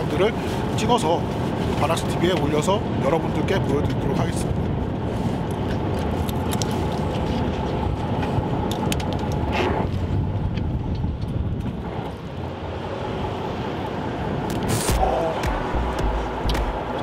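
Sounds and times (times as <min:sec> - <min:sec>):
boat engine rumbling: 0:14.3 - 0:17.0.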